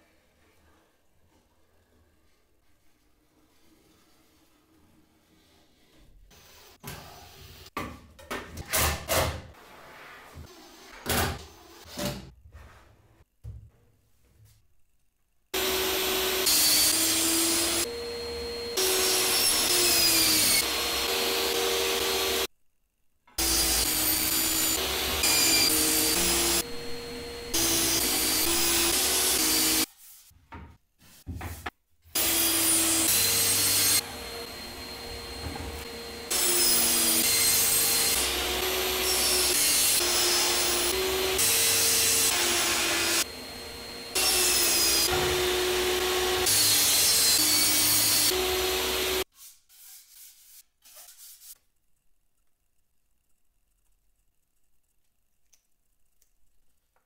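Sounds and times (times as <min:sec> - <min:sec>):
table saw cutting wood: 0:15.6 - 0:22.5, 0:23.4 - 0:29.9, 0:32.1 - 0:50.6
dust extractor running: 0:32.8 - 0:46.8.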